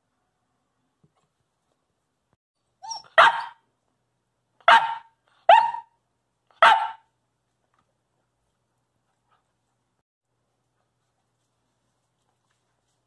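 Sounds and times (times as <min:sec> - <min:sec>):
puppy barking: 0:02.8 - 0:03.6, 0:04.6 - 0:07.1
puppy whining: 0:02.8 - 0:03.6.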